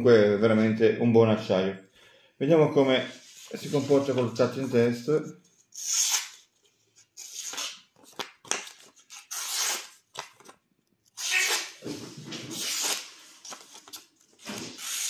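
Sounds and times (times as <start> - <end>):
paper rustling: 6.5 - 10.6, 11.4 - 15.0.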